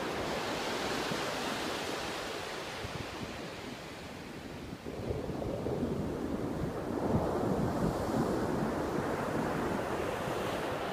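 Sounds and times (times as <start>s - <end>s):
wind buffeting microphone: 2.7s - 10.9s.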